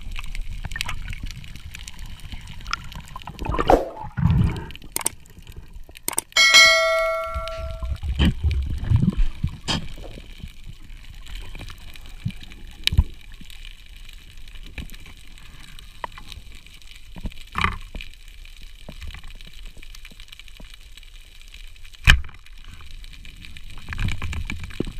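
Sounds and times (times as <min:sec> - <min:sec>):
underwater water rushing: 0:00.0 - 0:05.7
sharp clicks and knocks: 0:04.9 - 0:05.2, 0:06.1 - 0:08.0
bell chime: 0:06.4 - 0:08.0.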